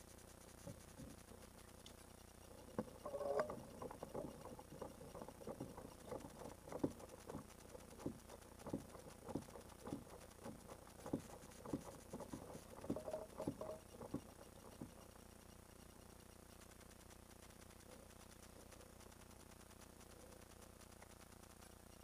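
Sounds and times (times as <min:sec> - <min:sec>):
wavelets lapping against plastic hull: 0:02.7 - 0:15.0.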